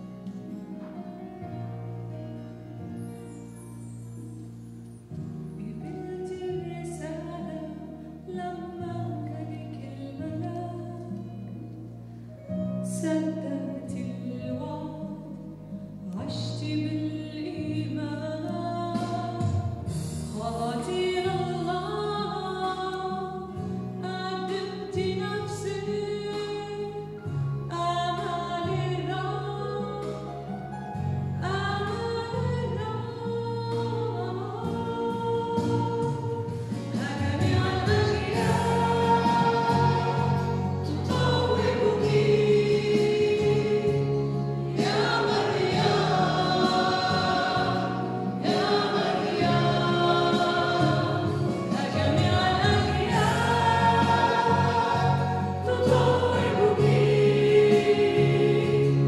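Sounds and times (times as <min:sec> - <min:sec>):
choir singing a hymn: 0:34.4 - 0:59.0.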